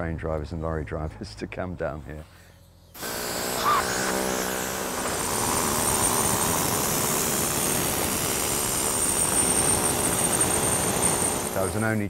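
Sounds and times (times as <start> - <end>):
air-powered carving tool on stone: 2.9 - 12.0.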